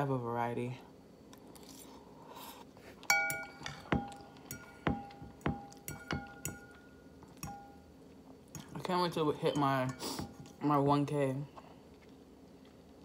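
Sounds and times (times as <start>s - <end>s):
fork clinking on ceramic bowl: 3.0s - 7.8s.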